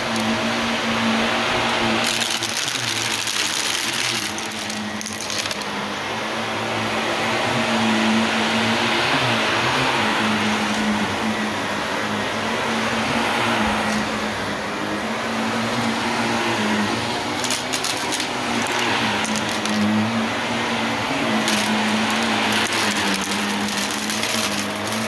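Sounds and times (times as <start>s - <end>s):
vacuum cleaner running: 0.0s - 25.0s
rocks rattling up vacuum hose: 1.6s - 5.7s, 16.6s - 20.2s, 21.1s - 25.0s.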